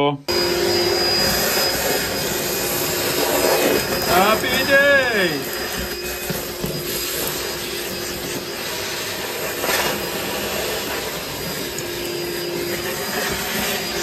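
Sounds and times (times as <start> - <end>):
vacuum cleaner humming: 0.0 - 14.0.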